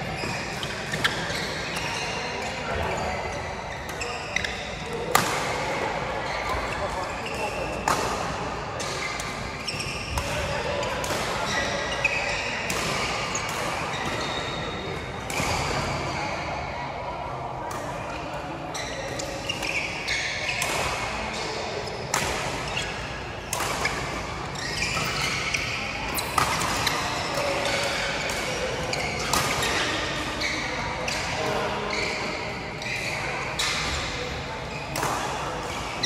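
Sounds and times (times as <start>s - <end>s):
indoor court noise: 0.0s - 36.0s
rackets hitting shuttlecock: 3.8s - 5.8s, 20.4s - 32.0s, 34.9s - 35.9s.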